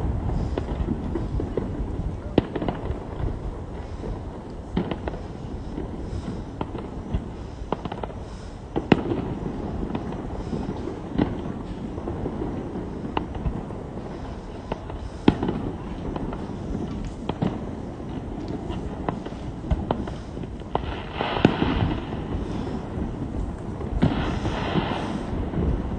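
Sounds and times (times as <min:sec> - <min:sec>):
fireworks bangs and pops: 0:00.0 - 0:25.9.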